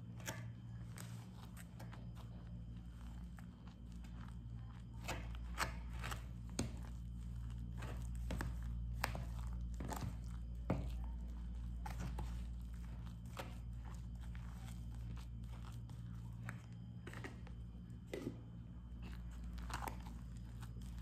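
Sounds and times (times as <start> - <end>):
steady low hum: 0.0 - 21.0
spoon scraping plastic tub: 0.1 - 18.4.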